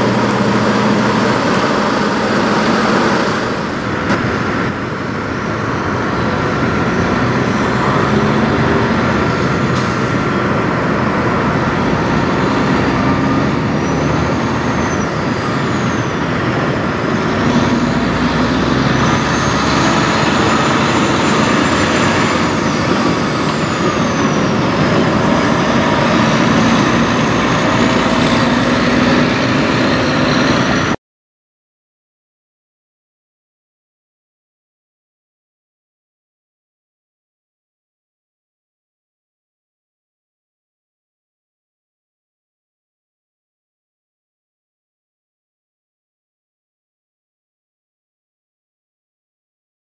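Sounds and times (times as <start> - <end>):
high whine: 0.0 - 31.0
truck diesel engine under load: 0.0 - 31.0.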